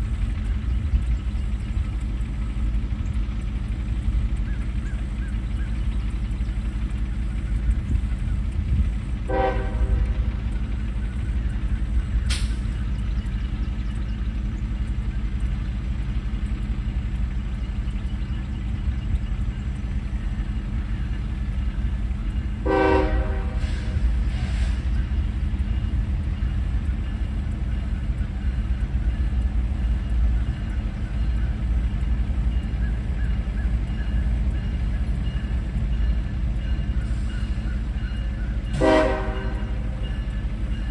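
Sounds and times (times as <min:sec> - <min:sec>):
low engine rumble: 0:00.0 - 0:40.9
diesel locomotive horn toots: 0:09.2 - 0:11.4, 0:22.3 - 0:28.8, 0:35.9 - 0:40.9.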